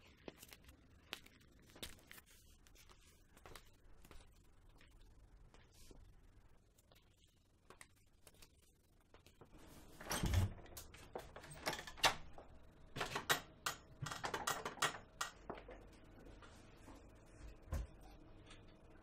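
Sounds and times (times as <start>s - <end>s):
sharp irregular clicks and knocks: 10.7s - 15.9s.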